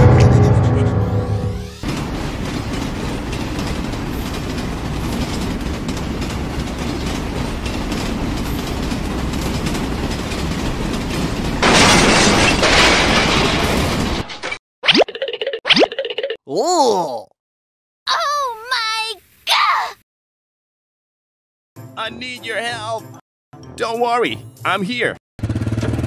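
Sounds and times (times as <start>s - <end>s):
heavy vehicle rumbling and clattering: 0.0s - 14.4s, 25.4s - 26.0s.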